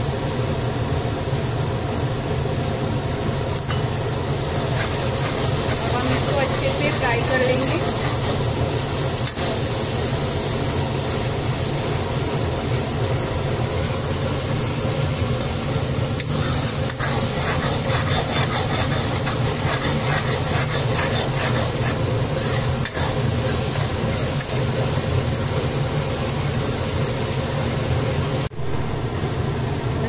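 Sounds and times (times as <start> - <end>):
masala sizzling in oil: 0.0 - 28.5
spatula scraping a pan: 4.5 - 9.5, 16.3 - 24.9
low hum: 28.4 - 30.0.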